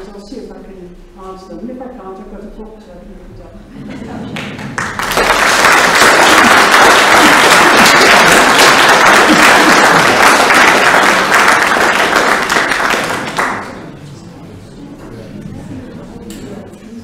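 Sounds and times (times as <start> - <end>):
audience applauding: 4.3 - 13.9.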